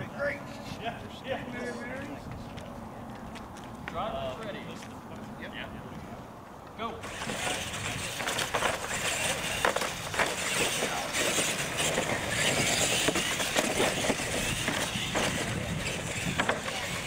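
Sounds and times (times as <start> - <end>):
toy trucks rattling over concrete: 7.0 - 17.0.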